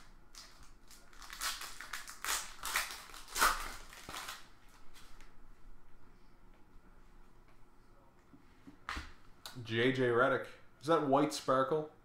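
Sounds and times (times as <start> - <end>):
plastic wrapper tearing and crinkling: 0.0 - 4.8.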